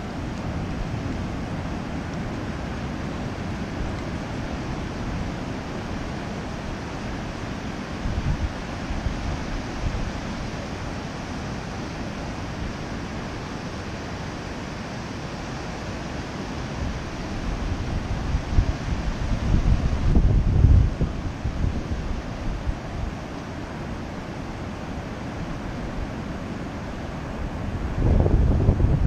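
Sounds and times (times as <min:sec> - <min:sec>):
wind buffeting microphone: 0:07.8 - 0:10.2, 0:16.8 - 0:23.2, 0:27.5 - 0:29.0.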